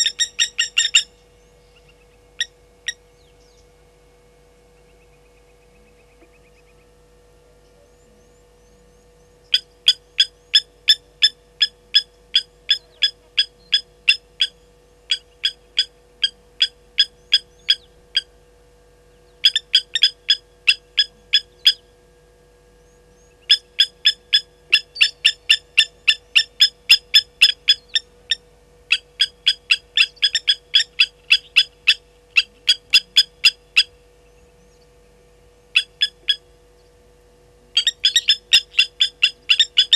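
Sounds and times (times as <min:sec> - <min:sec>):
lapwing metallic alarm calls: 0:00.0 - 0:03.6, 0:09.4 - 0:18.4, 0:19.2 - 0:21.9, 0:23.1 - 0:34.9, 0:35.7 - 0:36.9, 0:37.7 - 0:39.9.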